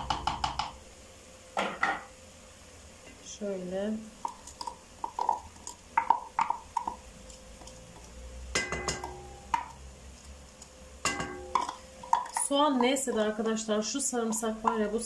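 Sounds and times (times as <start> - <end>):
utensil tapping and scraping pan: 4.2 - 9.8, 10.6 - 15.0.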